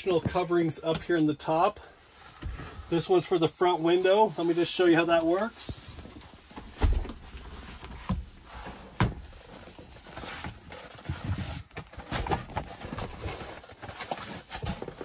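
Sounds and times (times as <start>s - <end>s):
folding cover rustling and clattering: 4.1s - 15.0s.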